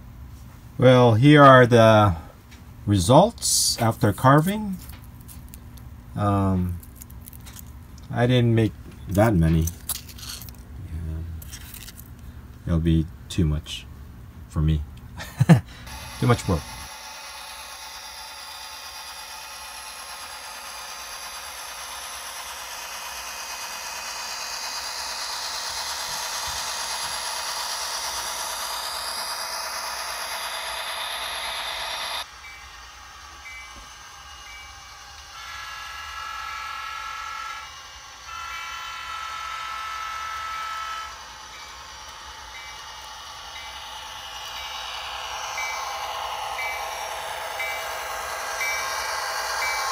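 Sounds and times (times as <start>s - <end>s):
model train running: 15.4s - 49.9s.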